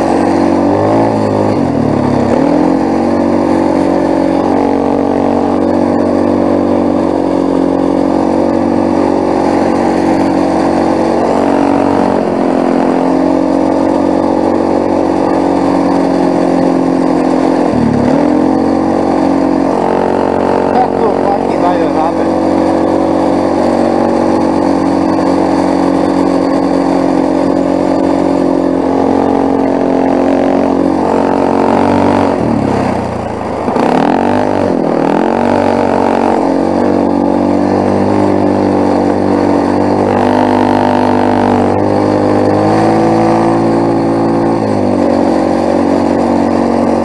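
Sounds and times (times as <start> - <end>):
quad bike engine running: 0.0 - 47.0.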